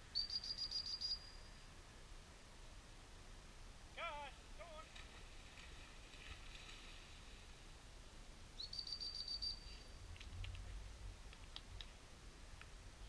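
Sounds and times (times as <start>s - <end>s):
faint short chirps: 0.2s - 1.6s, 8.6s - 10.0s.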